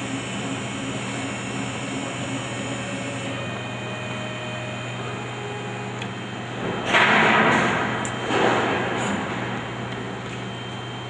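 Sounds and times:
engraving router motors humming: 0.0 - 6.6.

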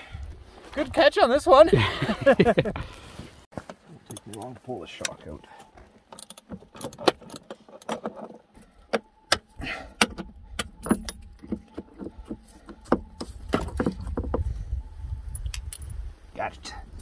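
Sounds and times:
metallic clicks and knocks: 6.1 - 14.5.

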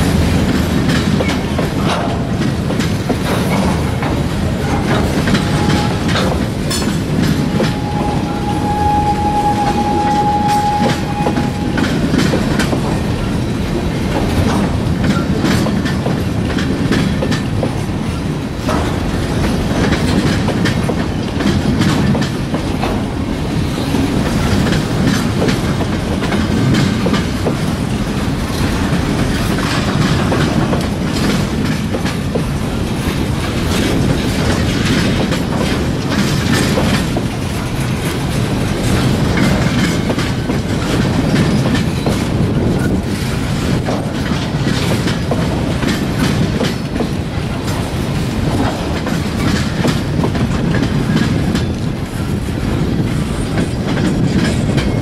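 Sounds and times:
wheels clicking over rail joints: 0.0 - 9.6, 10.2 - 55.0
freight train rumbling past: 0.0 - 55.0
thin high tone: 7.4 - 12.1.

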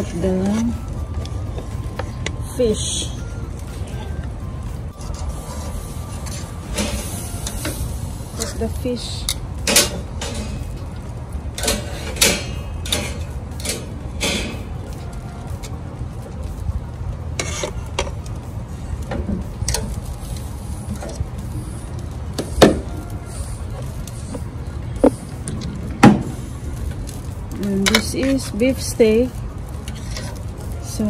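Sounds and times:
metal tongs scraping grill grate: 4.9 - 15.7, 17.4 - 18.3, 27.2 - 31.0.

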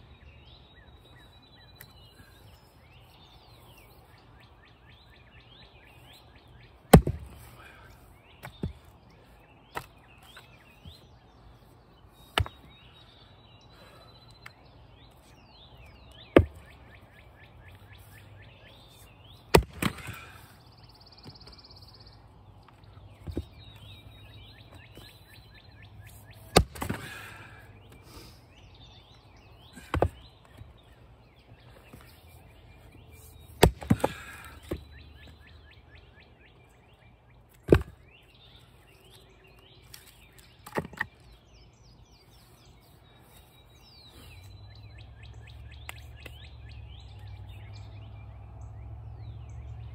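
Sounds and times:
songbirds chirping: 0.0 - 49.9
axe splitting firewood: 6.9 - 7.8, 8.4 - 8.9, 9.7 - 11.0, 12.3 - 12.7, 16.1 - 16.8, 19.4 - 20.5, 23.2 - 23.9, 26.1 - 28.2, 29.7 - 30.6, 33.2 - 35.3, 37.6 - 38.0, 39.8 - 41.2.

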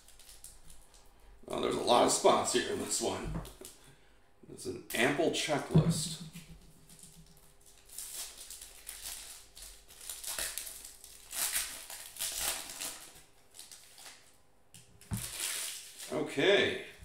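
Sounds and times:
foil wrapper crinkling: 0.0 - 1.2, 6.6 - 14.4, 15.0 - 16.1.

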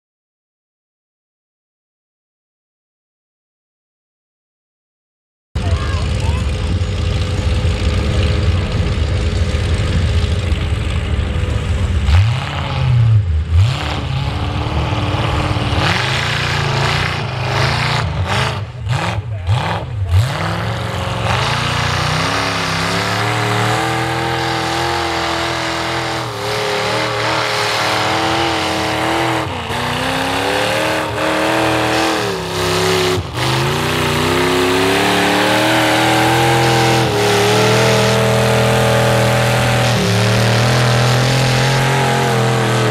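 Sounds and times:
tires churning through mud: 5.6 - 42.9
truck engine revving: 5.6 - 42.9.

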